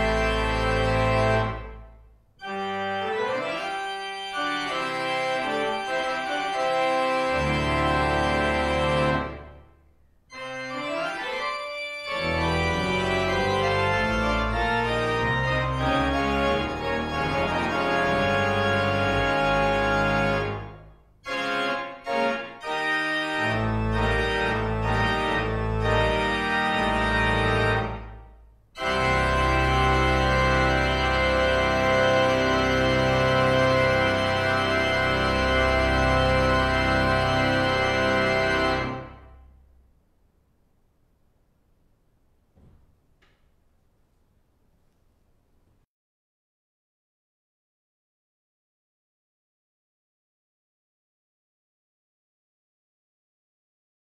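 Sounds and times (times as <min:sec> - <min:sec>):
church organ chords: 0:00.0 - 0:39.7.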